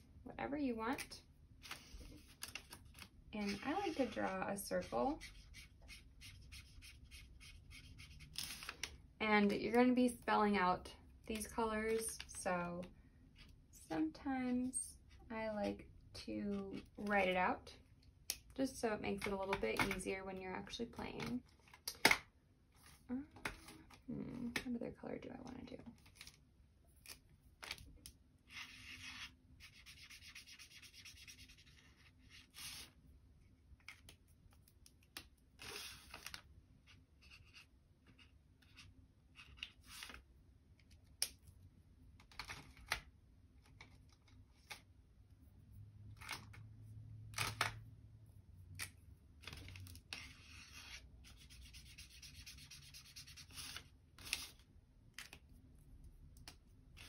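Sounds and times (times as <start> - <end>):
marker scribbling on paper: 3.4 - 8.3, 28.5 - 31.8, 50.2 - 53.8.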